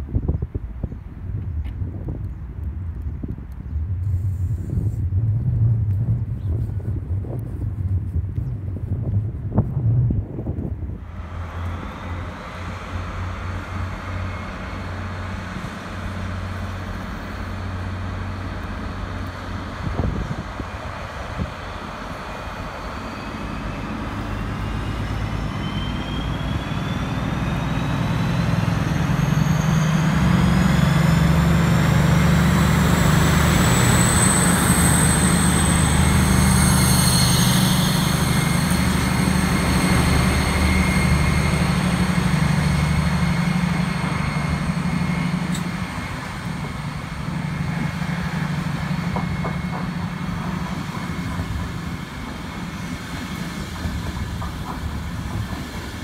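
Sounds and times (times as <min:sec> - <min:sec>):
diesel locomotive engine drone: 0:00.0 - 0:56.0
train coaches rumbling on rails: 0:00.0 - 0:56.0
high whine: 0:22.3 - 0:54.4.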